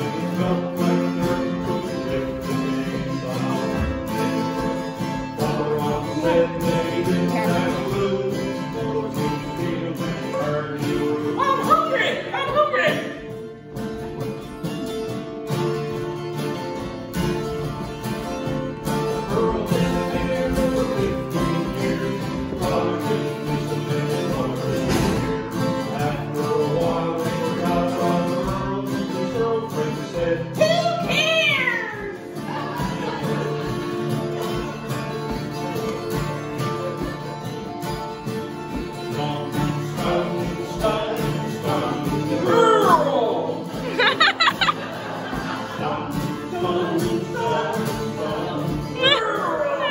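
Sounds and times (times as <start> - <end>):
person singing: 0.0 - 13.4, 18.8 - 37.4, 38.7 - 49.9
acoustic guitars strummed: 0.0 - 49.9.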